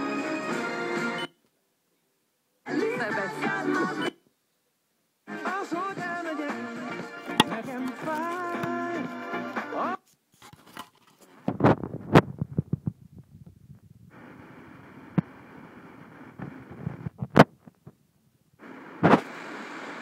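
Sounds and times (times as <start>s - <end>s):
radio music: 2.7s - 4.2s, 5.4s - 10.0s, 18.6s - 20.0s
crackling radio static: 7.2s - 9.6s, 10.8s - 12.9s, 14.1s - 17.9s, 18.6s - 20.0s
radio hiss: 7.2s - 10.0s, 14.1s - 17.2s, 18.6s - 20.0s.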